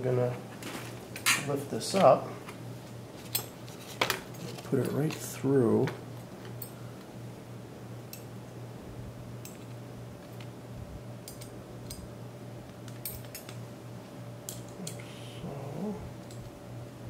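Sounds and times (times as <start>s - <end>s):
faint steady hum: 0.0s - 17.0s
metal parts clicking together: 12.9s - 13.6s.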